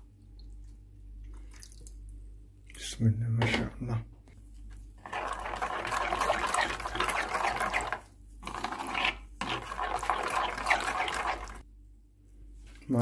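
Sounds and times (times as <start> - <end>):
spoon stirring thick marinade: 5.0 - 11.6.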